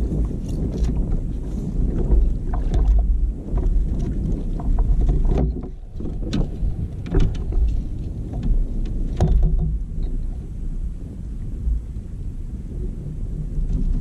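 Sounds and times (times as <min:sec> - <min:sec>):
water against kayak hull: 0:00.0 - 0:14.0
wind rumble on microphone: 0:00.0 - 0:14.0
knocks and rattles: 0:01.9 - 0:10.2.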